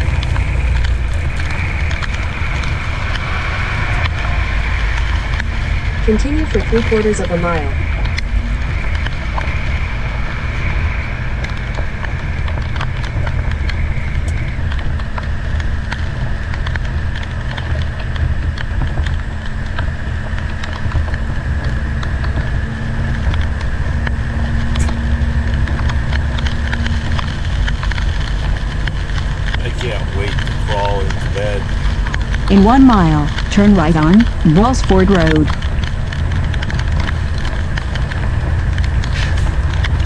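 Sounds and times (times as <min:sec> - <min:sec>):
diesel engine drone: 0:00.0 - 0:40.0
rain ticking on cab: 0:00.0 - 0:40.0
tyre hiss on wet road: 0:39.1 - 0:39.6.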